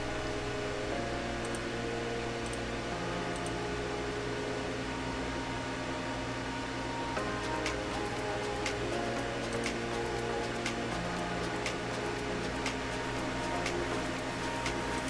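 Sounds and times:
soft background music chords: 0:00.0 - 0:15.0
steady hiss: 0:06.1 - 0:15.0.

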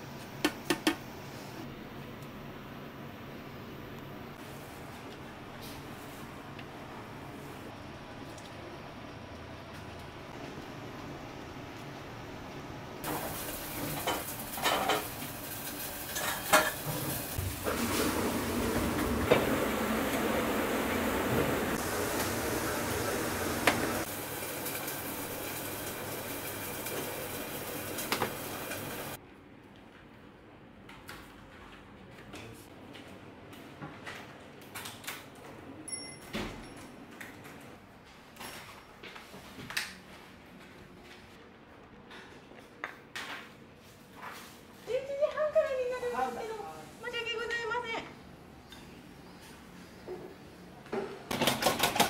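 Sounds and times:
food sizzling in hot oil: 0:13.0 - 0:17.5, 0:21.8 - 0:29.2.

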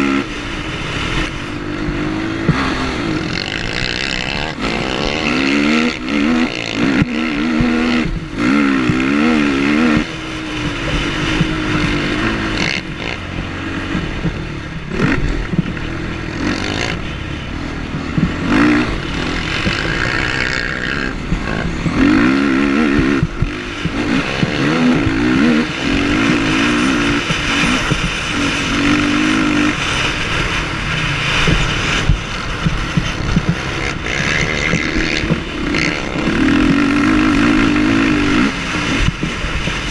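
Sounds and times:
quad engine revving: 0:00.0 - 0:39.9
wind noise: 0:00.0 - 0:39.9.

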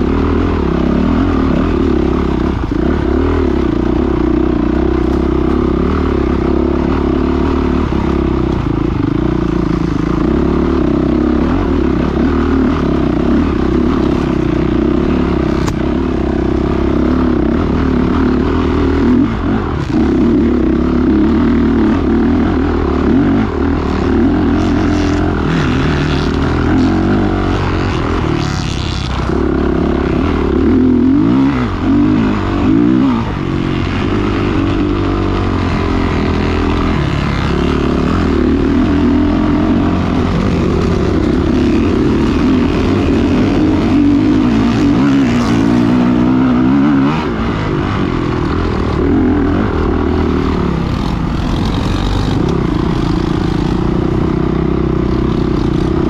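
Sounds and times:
dirt bike engine revving: 0:00.0 - 0:56.0.

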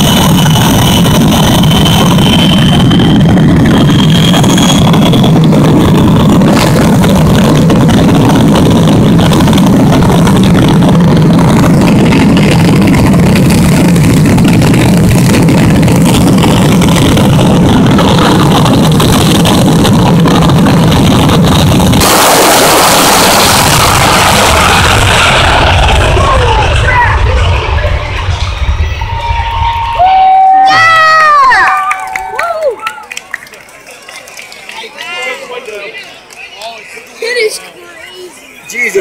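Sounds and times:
faint high whine: 0:00.0 - 0:07.0
turbine engines roaring: 0:00.0 - 0:32.8.

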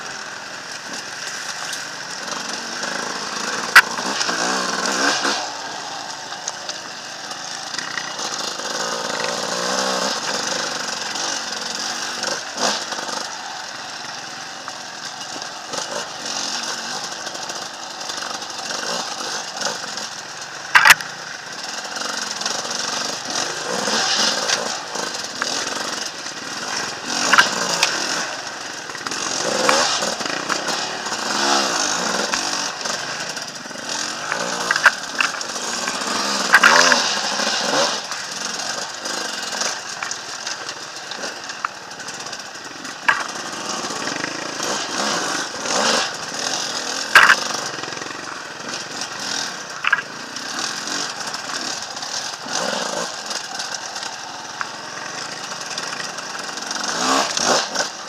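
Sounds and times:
motorcycle engine revving: 0:00.0 - 0:58.0
sharp knocks and clatter: 0:14.7 - 0:57.9.

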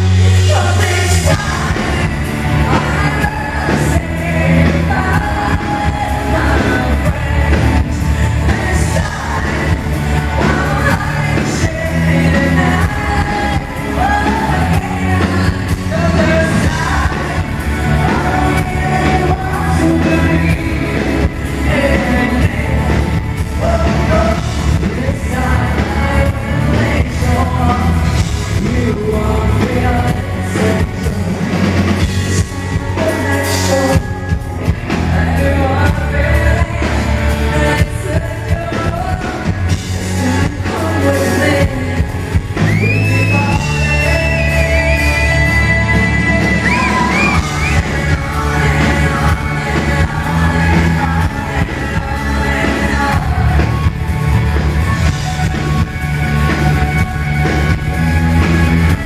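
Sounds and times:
bass guitar: 0:00.0 - 0:59.0
drum kit: 0:00.0 - 0:59.0
electric guitars: 0:00.0 - 0:59.0
woman singing: 0:00.4 - 0:54.1.

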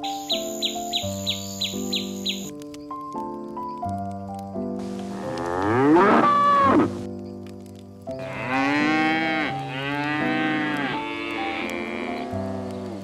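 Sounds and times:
soft background music: 0:00.0 - 0:13.0
calf mooing: 0:05.2 - 0:06.9, 0:08.2 - 0:12.7.

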